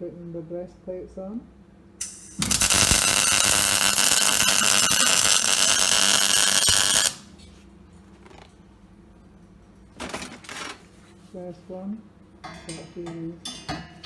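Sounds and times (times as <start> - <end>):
arc welding crackle: 2.0 - 7.3.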